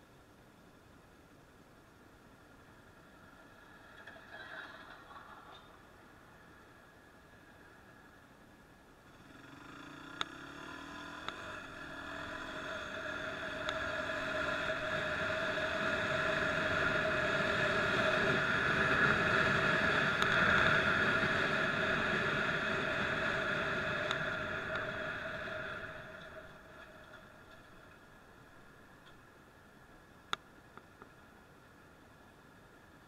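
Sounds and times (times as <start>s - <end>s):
motorcycle engine drone: 6.4s - 29.3s.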